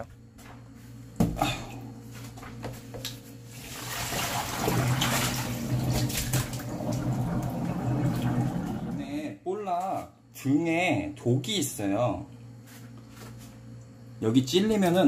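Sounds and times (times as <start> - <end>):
water splashing into steel sink: 3.6 - 9.0.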